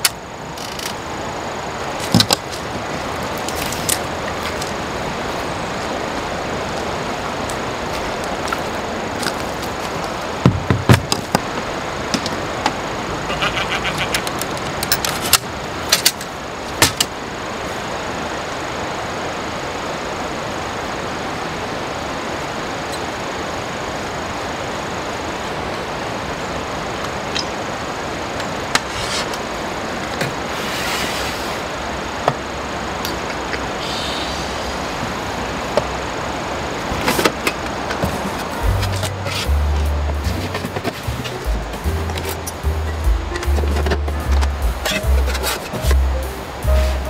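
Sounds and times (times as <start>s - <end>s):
steady rushing stream: 0.0s - 47.0s
camping gear clicking and knocking: 7.9s - 12.8s, 14.2s - 17.1s, 36.9s - 46.1s
metal drawer sliding out: 43.3s - 46.0s.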